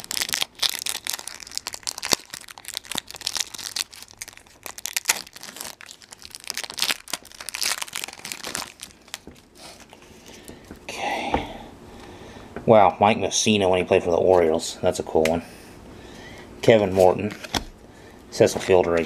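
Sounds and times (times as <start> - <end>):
foil wrapper crinkling and tearing: 0.0 - 10.5.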